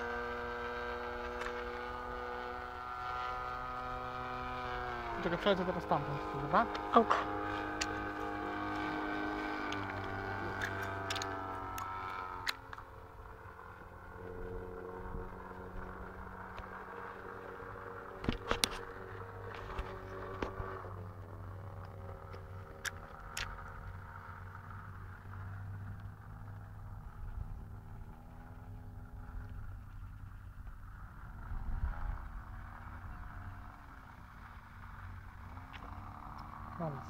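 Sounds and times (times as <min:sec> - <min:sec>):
model aeroplane engine droning: 0:00.0 - 0:37.0
sharp clicks: 0:09.7 - 0:12.8.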